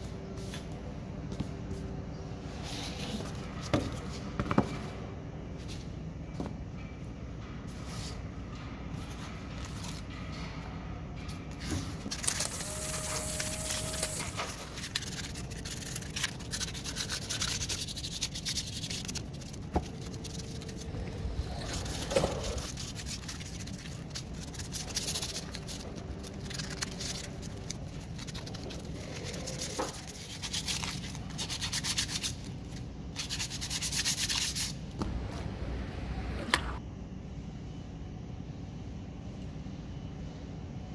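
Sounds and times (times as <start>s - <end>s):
sandpaper scratching on metal: 12.4s - 20.9s.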